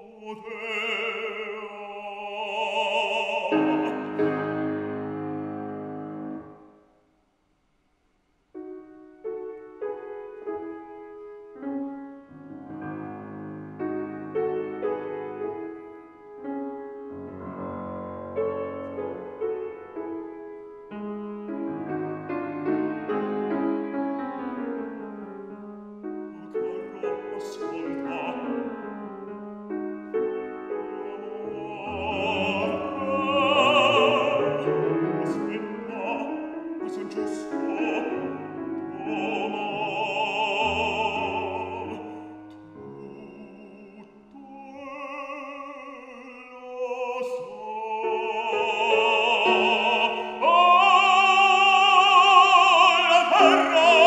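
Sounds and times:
operatic baritone singing: 0.0s - 5.0s, 26.3s - 29.0s, 30.6s - 54.0s
grand piano: 0.0s - 7.1s, 8.4s - 54.0s.

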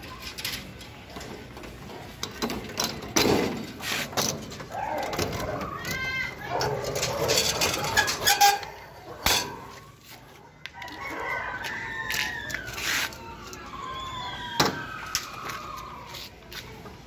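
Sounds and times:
rooster crowing: 10.8s - 12.8s.

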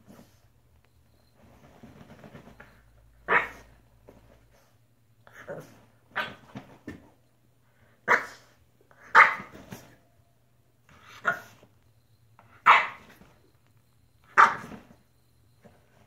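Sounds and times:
dog barking: 3.3s - 3.6s, 8.0s - 9.7s, 11.0s - 11.6s, 12.6s - 13.1s, 14.3s - 14.8s.

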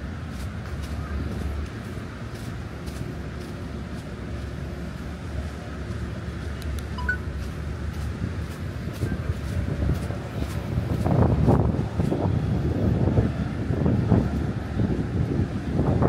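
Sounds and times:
traffic rumble: 0.0s - 16.0s
footsteps ticking: 0.3s - 12.2s
wind on microphone: 7.8s - 16.0s.

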